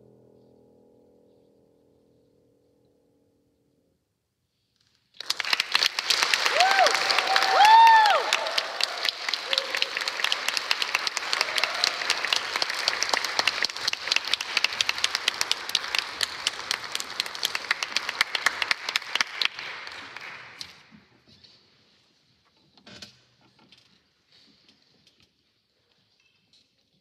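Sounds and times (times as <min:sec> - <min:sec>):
audience applauding: 0:05.2 - 0:20.9.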